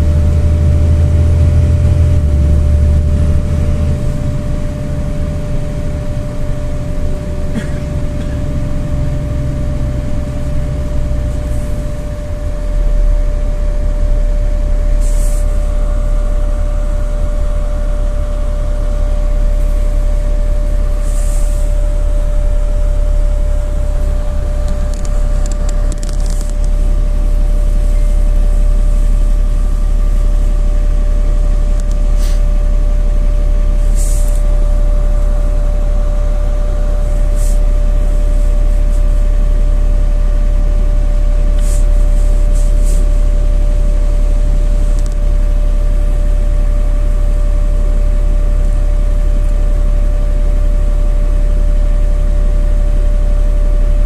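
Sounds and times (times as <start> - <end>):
bus engine rumble: 0.0 - 54.0
constant whine: 0.0 - 54.0
brief hisses: 32.2 - 32.4, 33.9 - 34.4.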